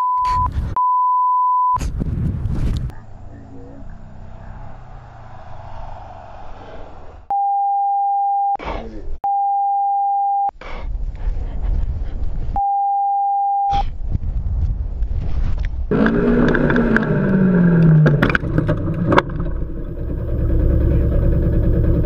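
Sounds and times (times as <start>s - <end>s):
loud rumbling noise: 2.0s - 7.3s, 15.9s - 22.0s
editing bleep tone: 7.3s - 8.6s.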